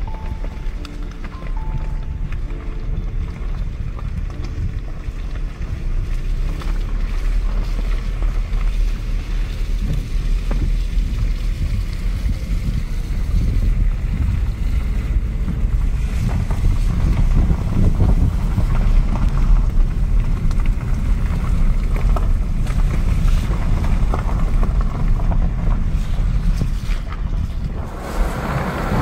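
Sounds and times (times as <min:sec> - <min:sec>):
faint crackles: 0:00.0 - 0:29.0
wind buffeting microphone: 0:00.0 - 0:29.0.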